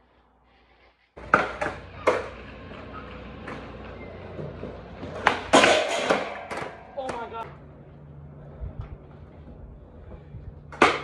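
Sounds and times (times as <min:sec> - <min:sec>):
skateboard wheels rolling: 0:00.4 - 0:11.0
skateboard clacks on concrete: 0:01.2 - 0:07.5, 0:10.6 - 0:11.0.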